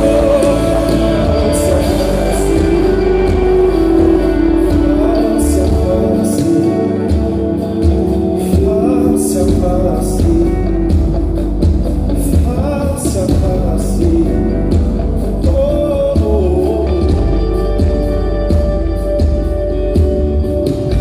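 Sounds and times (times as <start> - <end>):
wavering melody line: 0.0 - 10.0
bass guitar: 0.0 - 21.0
guitar: 0.0 - 21.0
keyboards: 0.0 - 21.0.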